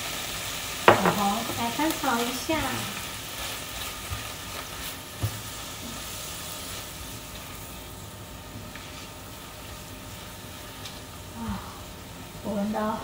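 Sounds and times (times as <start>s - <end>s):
vegetables sizzling in hot oil: 0.0s - 13.0s
spatula stirring in frying pan: 0.2s - 11.2s
knock: 0.9s - 1.2s.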